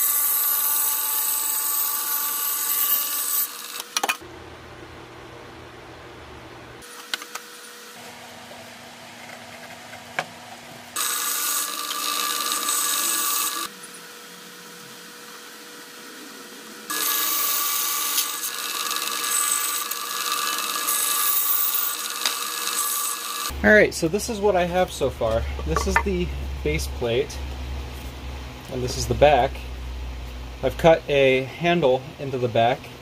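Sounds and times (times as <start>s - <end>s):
bandsaw cutting wood: 0.0s - 4.1s, 11.0s - 13.8s, 16.3s - 23.6s
saw running with steady hum: 10.9s - 32.0s.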